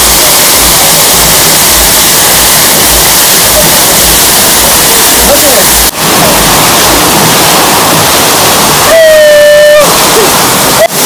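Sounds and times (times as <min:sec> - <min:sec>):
steady high tone: 0:00.0 - 0:08.0
splashing water rush: 0:00.0 - 0:11.0.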